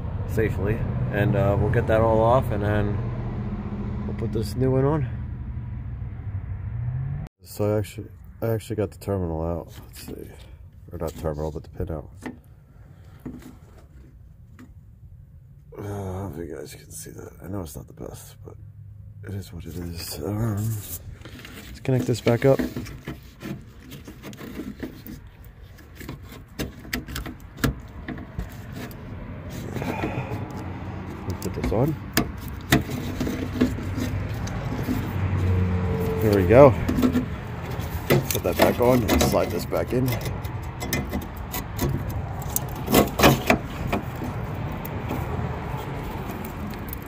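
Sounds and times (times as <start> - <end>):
low steady rumble: 0.0 - 7.3.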